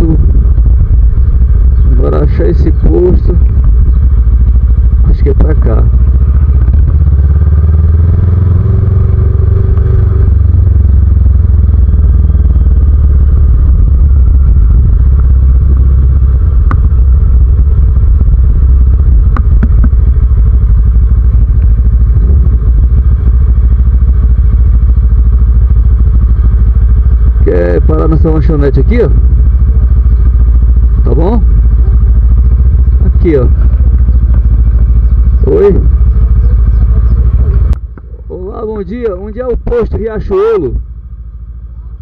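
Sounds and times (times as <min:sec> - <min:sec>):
motorcycle engine accelerating: 0:00.0 - 0:42.0
riding noise rumble: 0:00.0 - 0:42.0.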